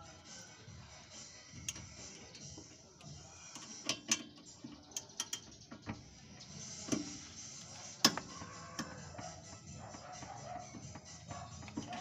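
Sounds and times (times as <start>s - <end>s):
metallic clicks of hand tools: 1.6s - 5.6s.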